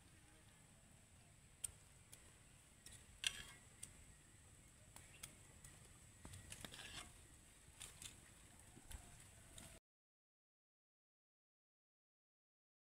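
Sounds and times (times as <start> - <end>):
faint clicks and ticks: 1.6 - 4.1, 4.7 - 7.1.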